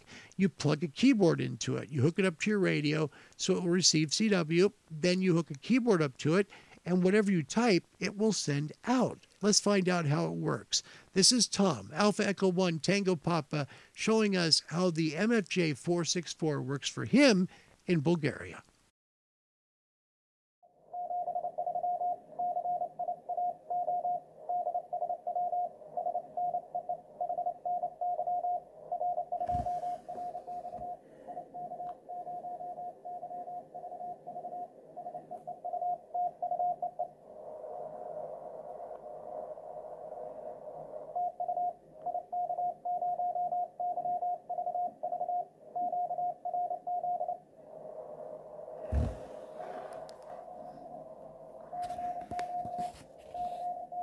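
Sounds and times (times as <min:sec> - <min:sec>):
morse code tone: 0:27.3 - 0:37.0, 0:51.8 - 0:54.0
dull thumps: 0:48.9 - 0:49.3.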